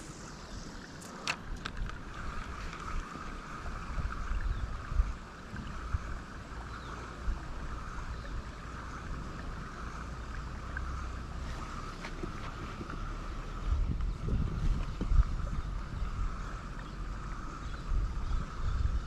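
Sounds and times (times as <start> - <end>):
steady background hum: 0.0 - 19.0
wind buffeting microphone: 1.4 - 19.0.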